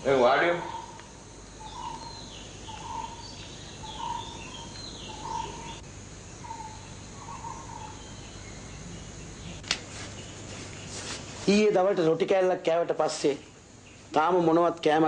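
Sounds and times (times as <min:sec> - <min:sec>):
bird calling: 0:00.0 - 0:05.8, 0:06.4 - 0:11.2
steady low hum: 0:00.0 - 0:14.8
higher bird chirps: 0:00.1 - 0:11.1.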